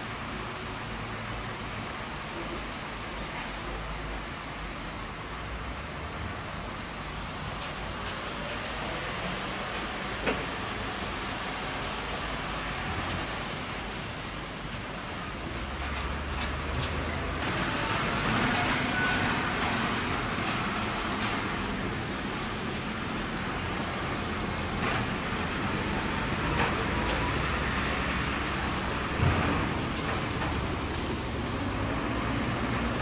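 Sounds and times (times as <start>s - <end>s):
motor vehicles running: 15.4s - 33.0s.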